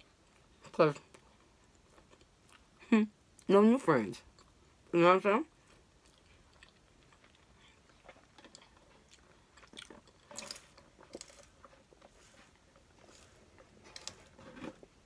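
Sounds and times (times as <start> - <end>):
mouth chewing: 5.6 - 14.9.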